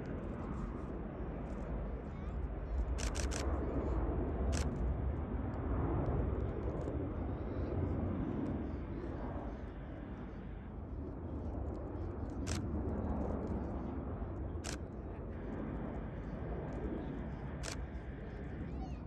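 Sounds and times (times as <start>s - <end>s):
jet engine noise: 0.0s - 19.0s
camera shutter clicks: 3.0s - 3.5s.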